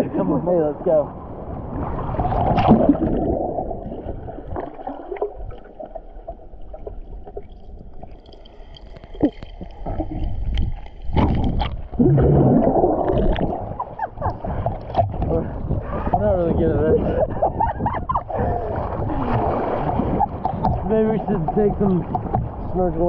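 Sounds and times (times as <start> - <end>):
underwater gurgling and sloshing: 0.0 - 23.0
sharp underwater clicks: 7.3 - 15.3.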